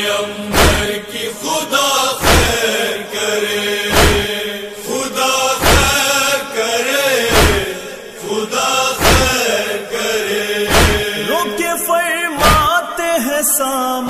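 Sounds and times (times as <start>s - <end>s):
chorus of voices chanting: 0.0s - 13.9s
deep thumps: 0.5s - 1.0s, 2.2s - 2.7s, 3.9s - 4.4s, 5.6s - 6.0s, 7.3s - 7.8s, 9.0s - 9.4s, 10.7s - 11.2s.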